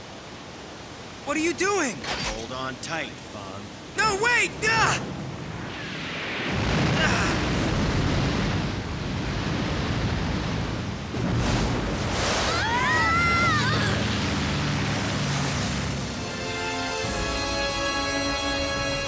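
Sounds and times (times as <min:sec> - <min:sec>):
rushing water and spray: 0:00.0 - 0:19.0.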